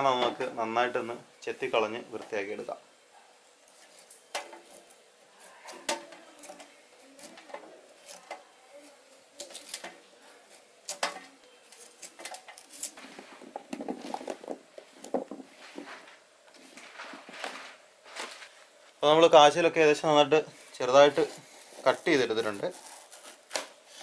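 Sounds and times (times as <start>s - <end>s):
knife scraping yam skin: 21.2s - 24.0s.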